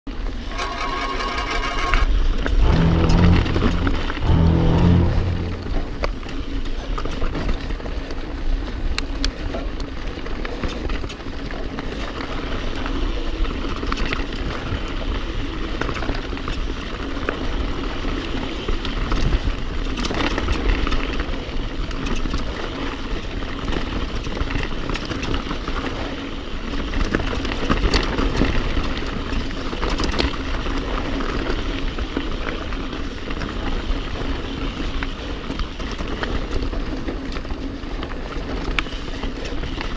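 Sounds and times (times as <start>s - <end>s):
steady low rumble: 2.5s - 6.3s
bike tyres rolling over dirt: 9.4s - 39.9s
bike rattling: 19.8s - 39.9s.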